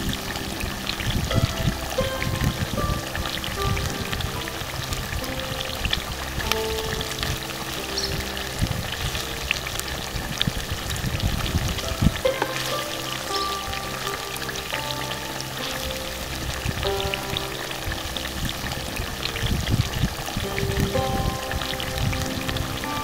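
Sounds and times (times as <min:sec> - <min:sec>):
curry sizzling and popping: 0:00.0 - 0:23.0
light background music: 0:00.0 - 0:23.0.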